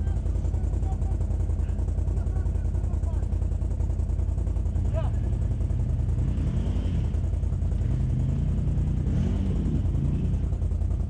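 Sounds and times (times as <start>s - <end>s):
engines idling: 0.0s - 11.0s
engine revving: 4.7s - 11.0s.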